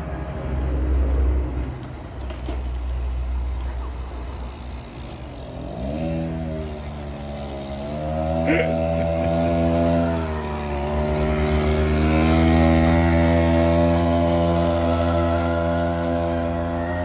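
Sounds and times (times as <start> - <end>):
mini bike engine revving: 0.0 - 17.0.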